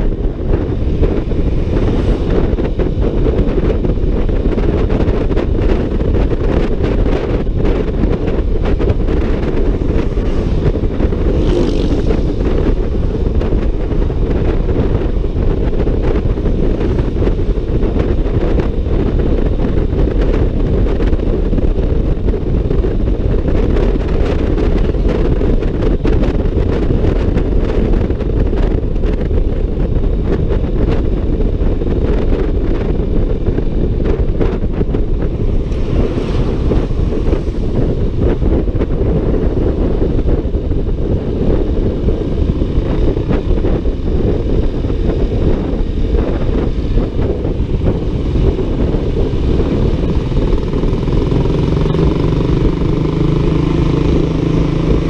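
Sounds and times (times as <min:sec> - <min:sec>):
scooter running noise: 0:00.0 - 0:55.0
wind buffeting microphone: 0:00.0 - 0:55.0.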